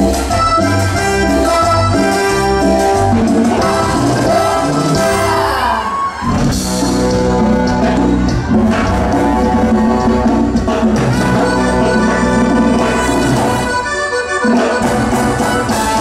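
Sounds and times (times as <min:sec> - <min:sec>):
live band music: 0:00.0 - 0:16.0.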